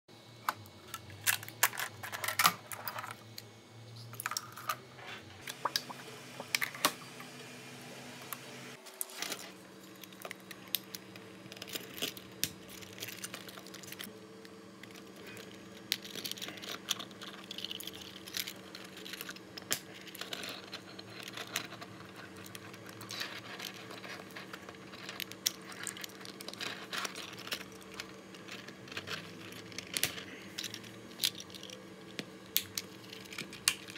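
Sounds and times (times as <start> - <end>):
low steady hum: 0.1 - 33.9.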